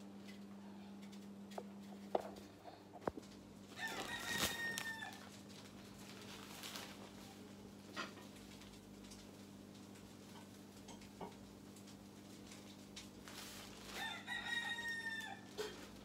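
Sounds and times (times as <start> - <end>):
plastic bag handled: 3.1 - 7.5, 13.1 - 15.0
rooster crowing: 3.7 - 5.4, 13.9 - 15.8.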